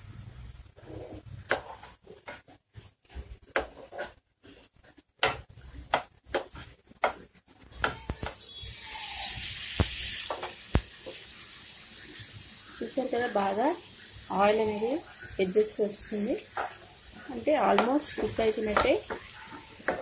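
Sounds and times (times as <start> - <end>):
spatula scraping frying pan: 0.8 - 9.4, 16.0 - 20.0
sizzling hiss: 6.5 - 20.0.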